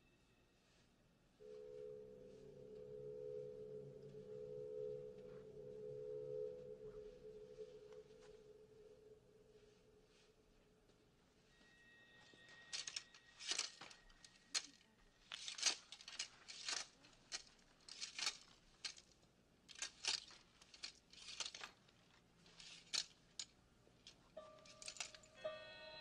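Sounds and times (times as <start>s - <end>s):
soft music: 0.0s - 14.7s, 24.3s - 26.0s
fabric rustling: 12.3s - 25.3s
hanger clicks: 12.7s - 22.0s, 22.6s - 25.3s.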